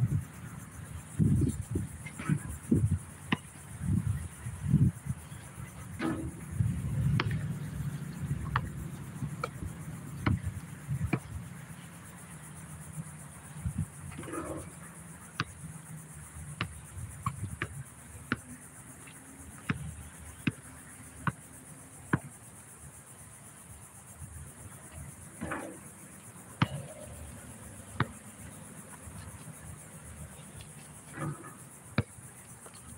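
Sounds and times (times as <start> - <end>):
high insect buzz: 0.0 - 32.9
basketball bouncing on concrete: 6.0 - 10.5, 19.7 - 21.4, 26.6 - 27.1, 27.9 - 28.9.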